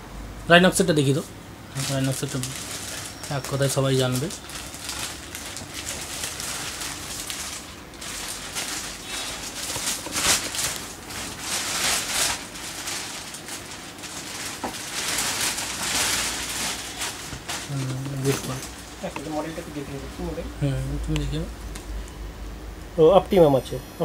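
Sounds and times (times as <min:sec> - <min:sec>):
plastic wrapper crinkling: 0:01.1 - 0:20.2.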